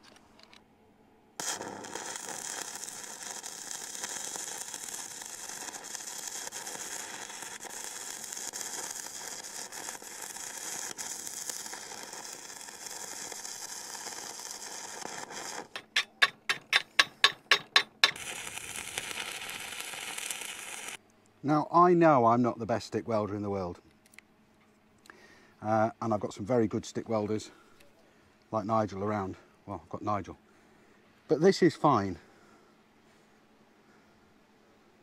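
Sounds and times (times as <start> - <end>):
loud welding pulses: 1.4 - 21.0
welding arc hissing and crackling: 1.4 - 21.0.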